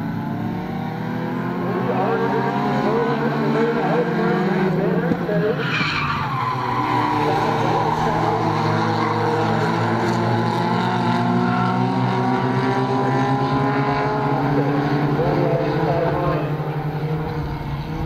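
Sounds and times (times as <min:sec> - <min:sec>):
race car engines running hard: 0:00.0 - 0:18.0.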